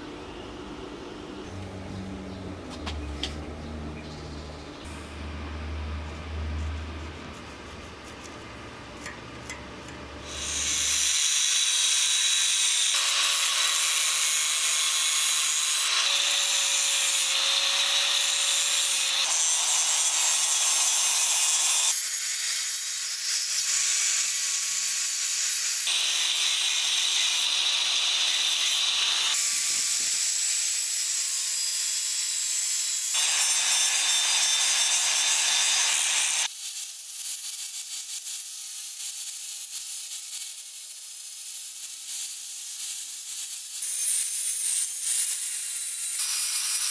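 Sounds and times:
angle grinder cutting steel: 7.8 - 46.9.

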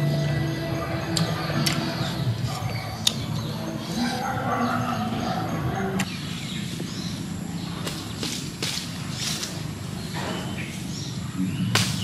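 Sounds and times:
undergrowth rustling and snapping: 7.8 - 9.9, 11.7 - 12.0.

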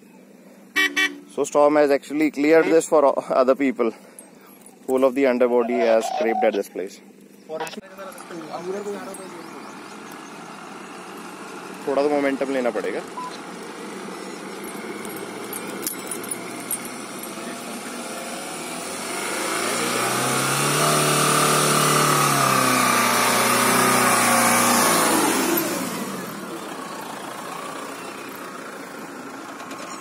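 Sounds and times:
diesel engine revving: 8.2 - 30.0.

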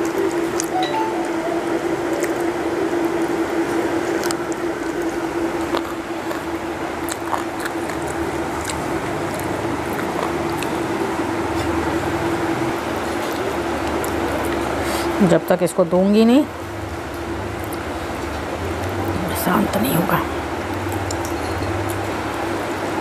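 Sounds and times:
steady hum: 0.4 - 7.0
wet squishing and chewing: 3.0 - 12.3, 12.9 - 15.2, 17.1 - 19.2.

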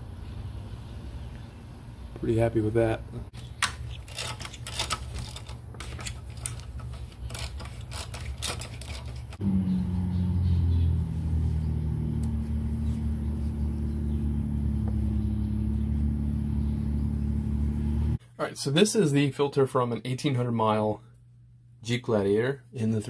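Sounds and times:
steady low drone: 9.4 - 18.2.

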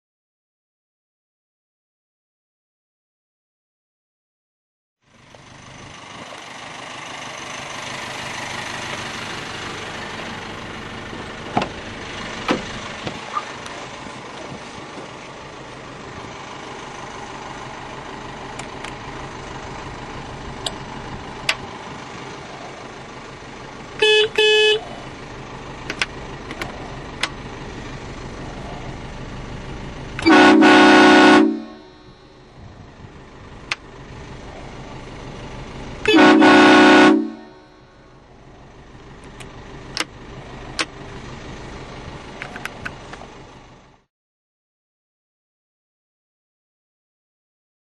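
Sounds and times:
car horn beeps: 24.0 - 24.9, 30.2 - 32.5, 36.0 - 38.2
train horn blasts: 24.0 - 24.9, 30.2 - 32.5, 36.0 - 38.1
background rumble: 24.8 - 36.1.

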